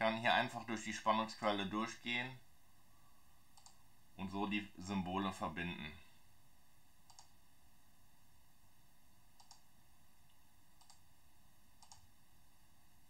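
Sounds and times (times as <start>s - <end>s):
computer mouse clicks: 3.6s - 3.8s, 7.1s - 7.4s, 9.4s - 9.7s, 10.3s - 11.0s, 11.8s - 12.1s.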